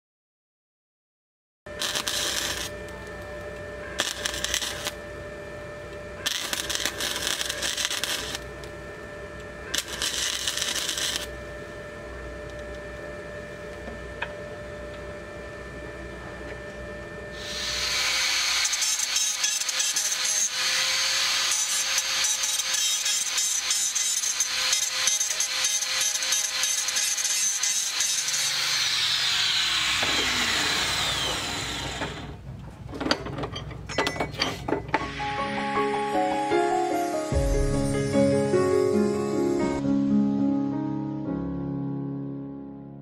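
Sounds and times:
welder humming: 1.7 - 32.4, 34.9 - 40.0
angle grinder grinding metal: 1.8 - 2.8, 3.9 - 5.0, 6.2 - 8.5, 9.7 - 11.3, 17.4 - 32.3
welding arc crackling: 1.8 - 2.8, 3.9 - 5.0, 6.2 - 8.6, 9.7 - 11.4, 17.4 - 32.3.

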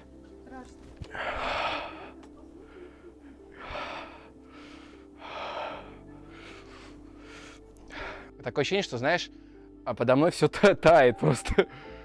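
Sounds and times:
person breathing deeply: 1.0 - 8.4.

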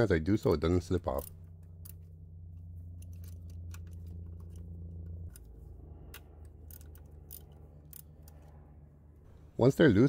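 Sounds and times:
steady low hum: 0.0 - 10.0
ratchet clicking: 6.1 - 8.5.

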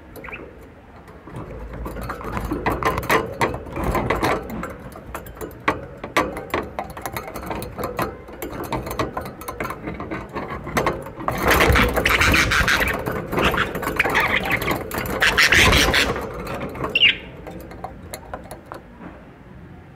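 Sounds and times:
clicks and scratches in cage: 0.0 - 19.2
budgerigars chattering: 12.0 - 16.2.

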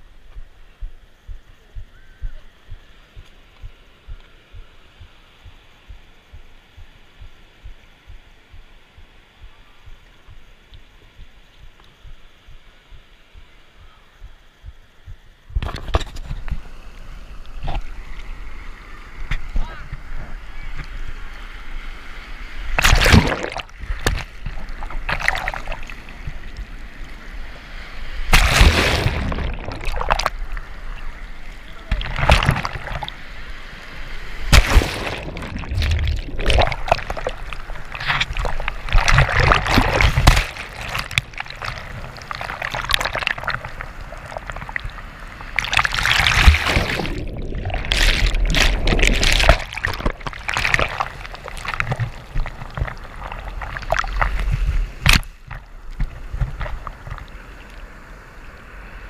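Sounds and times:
waves rushing and splashing: 2.3 - 59.0
churning water: 22.7 - 26.7, 28.2 - 33.2, 34.4 - 57.8.

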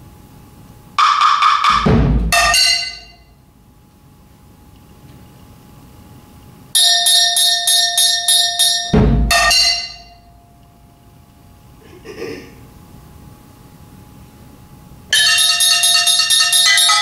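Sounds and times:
metal percussion struck with mallets: 1.0 - 3.3, 6.8 - 10.6, 15.1 - 17.0.

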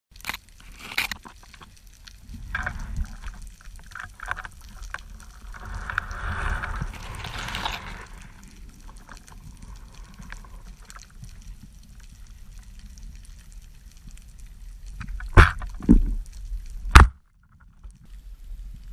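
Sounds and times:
underwater rumble of moving water: 1.6 - 16.8
hissing swell: 5.0 - 10.2.

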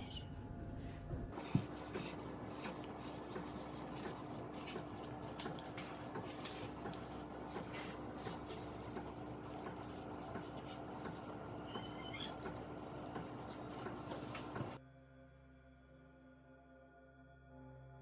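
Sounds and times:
pen scratching on paper: 1.3 - 11.2.

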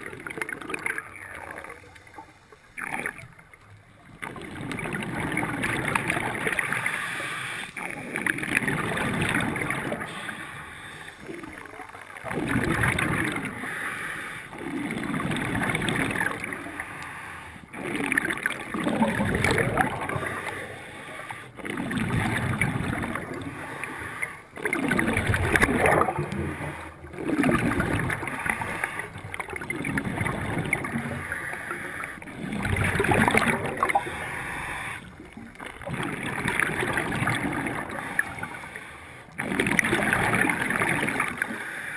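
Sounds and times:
air bubbles underwater: 0.0 - 41.7
diver breathing through regulator: 5.9 - 7.9, 8.6 - 11.7, 13.0 - 15.6, 16.3 - 18.2, 19.8 - 22.4, 23.1 - 24.6, 25.5 - 29.4, 30.7 - 35.6, 37.4 - 39.6, 41.1 - 41.9.

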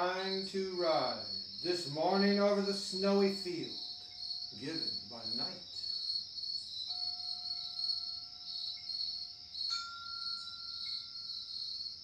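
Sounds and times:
crickets chirring: 0.0 - 12.0
ringing chime tones: 6.9 - 11.5.

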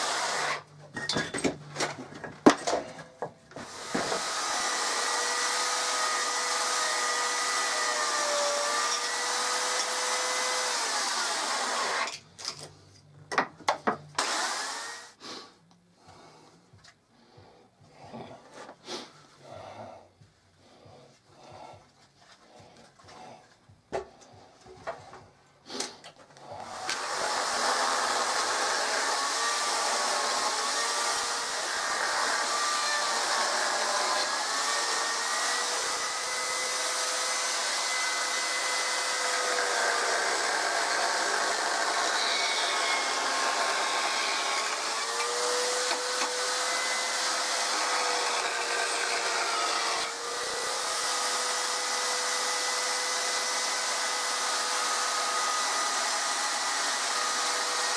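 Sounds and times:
chainsaw cutting wood: 0.0 - 0.7, 3.6 - 12.2, 14.2 - 15.2, 26.6 - 57.9.

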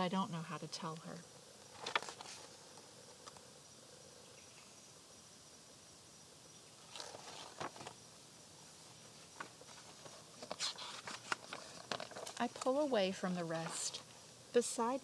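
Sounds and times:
insect chirring: 0.0 - 15.0
soft rustles: 1.7 - 3.4, 6.8 - 8.0, 8.7 - 14.2.

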